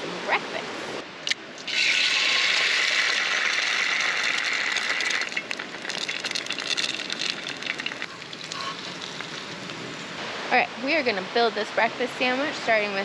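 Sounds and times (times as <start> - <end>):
eggs frying in oil: 1.7 - 9.7.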